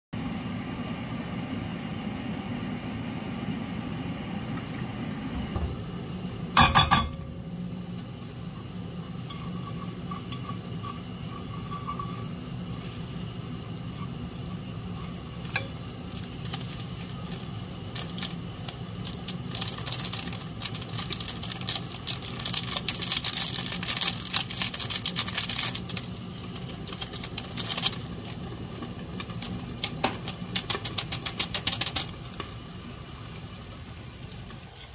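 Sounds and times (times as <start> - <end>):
steady low hum: 0.2 - 31.1
tomato paste frying in oil: 0.2 - 34.9
wooden spoon stirring and scraping: 8.0 - 18.5.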